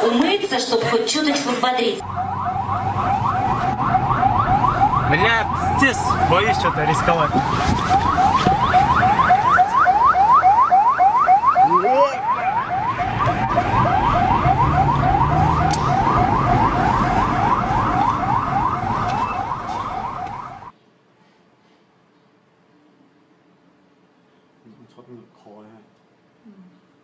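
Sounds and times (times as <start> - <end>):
electronic siren whooping: 2.0 - 20.7.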